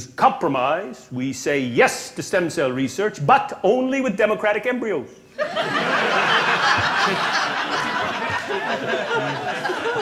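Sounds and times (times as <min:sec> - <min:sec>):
audience laughing: 0:05.4 - 0:10.0.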